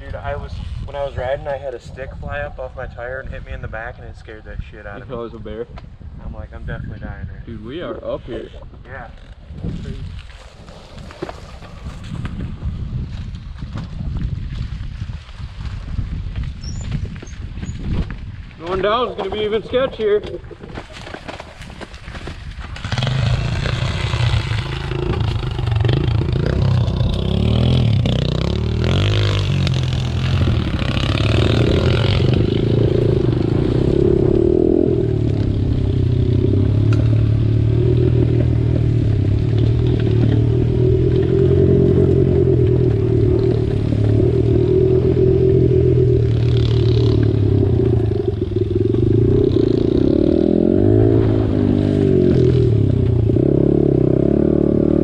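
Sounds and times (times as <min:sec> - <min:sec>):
bike clattering over rough ground: 0:16.3 - 0:28.2
pit bike engine running: 0:22.8 - 0:54.4.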